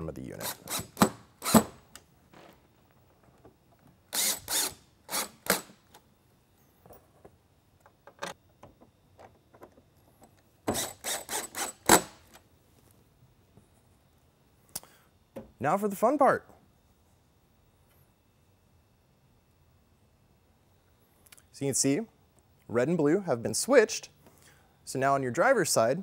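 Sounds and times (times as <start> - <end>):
cordless drill driving screws: 0.4 - 1.8, 4.1 - 5.8, 10.7 - 12.1.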